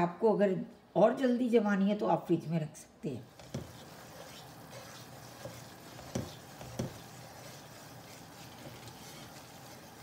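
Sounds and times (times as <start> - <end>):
spatula stirring in saucepan: 3.2 - 10.0
spatula knocking against pan: 5.3 - 7.2.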